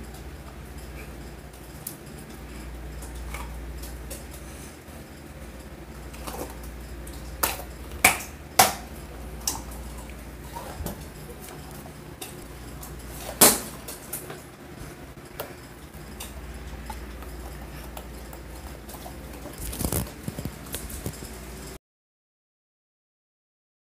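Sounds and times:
plastic bottle crackling: 0:19.4 - 0:21.2.

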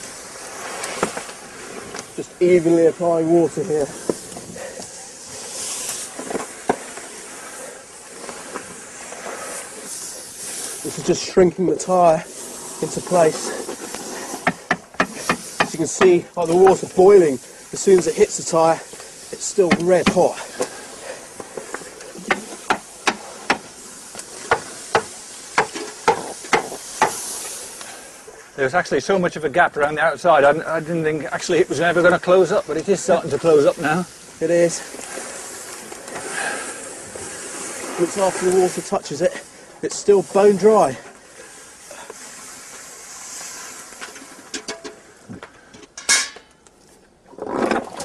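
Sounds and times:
steam hissing: 0:00.0 - 0:28.4.

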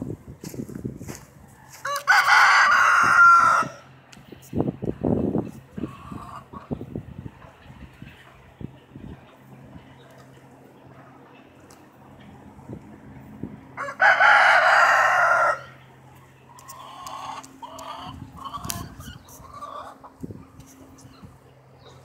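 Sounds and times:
rooster crowing: 0:01.6 - 0:03.9, 0:13.8 - 0:15.8
soft clucking calls: 0:16.2 - 0:22.0.

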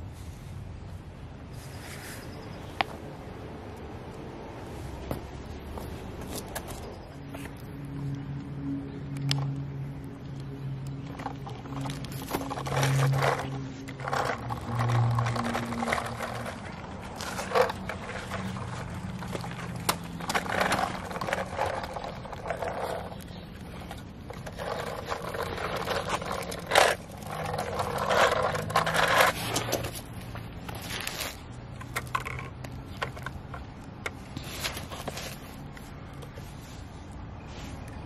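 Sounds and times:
toy truck wheels rolling on concrete: 0:10.8 - 0:36.9.

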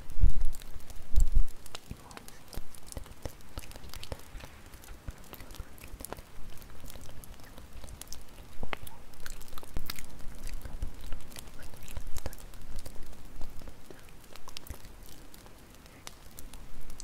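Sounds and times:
crackling wood fire: 0:00.0 - 0:17.0.

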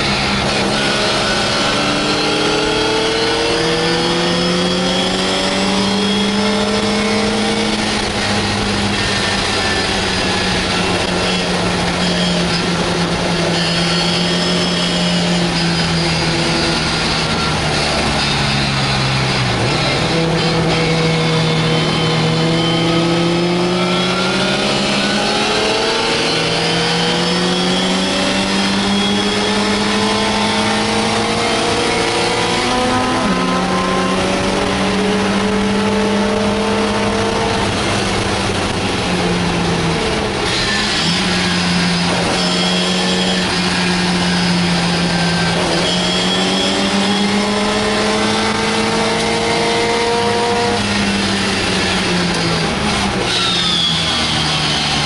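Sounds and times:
racing car engine: 0:00.0 - 0:55.0.

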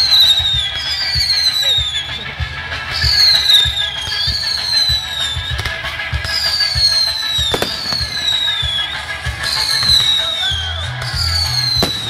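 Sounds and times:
show music with steady beat: 0:00.0 - 0:12.0
whistling fireworks: 0:00.0 - 0:12.0
firework bang: 0:03.1 - 0:10.6, 0:11.3 - 0:12.0.

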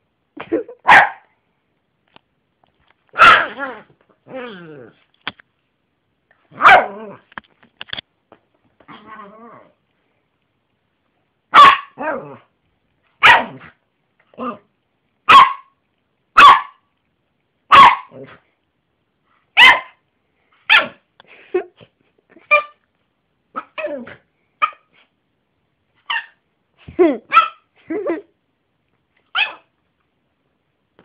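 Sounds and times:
small dog barking: 0:00.8 - 0:01.3, 0:03.1 - 0:03.8, 0:06.5 - 0:07.2, 0:11.5 - 0:12.4, 0:13.2 - 0:13.8, 0:15.2 - 0:16.9, 0:17.7 - 0:18.4, 0:19.6 - 0:20.0, 0:20.6 - 0:21.0, 0:27.3 - 0:27.7, 0:29.3 - 0:29.7.

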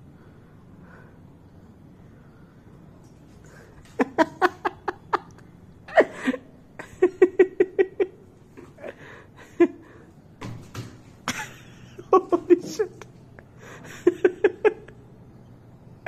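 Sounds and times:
person laughing: 0:03.5 - 0:10.0, 0:11.3 - 0:15.0.

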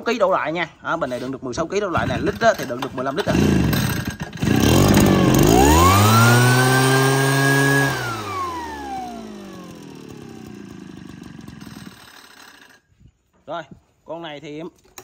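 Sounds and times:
small two-stroke engine revving: 0:03.1 - 0:12.8.

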